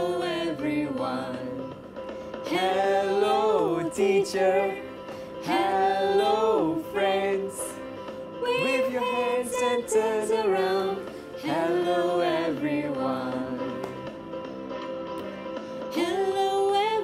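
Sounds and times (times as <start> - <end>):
theme song with singing: 0.0 - 17.0.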